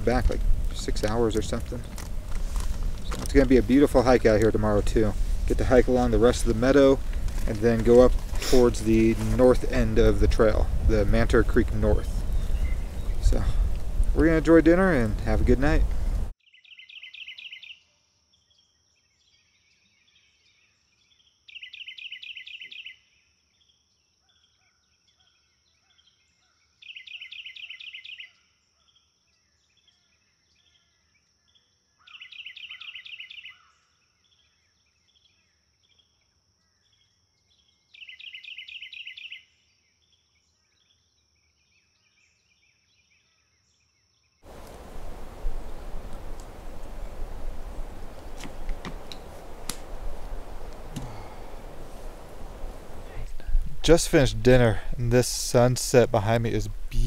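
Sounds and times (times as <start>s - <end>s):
campfire crackling and hissing: 0.0s - 16.4s, 44.4s - 57.0s
songbird trilling: 12.1s - 13.4s, 16.6s - 17.8s, 21.5s - 23.0s, 26.8s - 28.3s, 32.0s - 33.6s, 38.0s - 39.4s, 44.5s - 53.5s
faint bird chirps: 16.4s - 43.9s, 44.5s - 53.5s.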